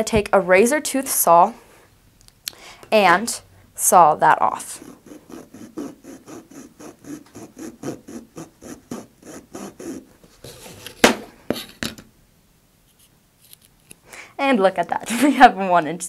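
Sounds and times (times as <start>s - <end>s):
saw cutting cardboard: 4.6s - 11.7s.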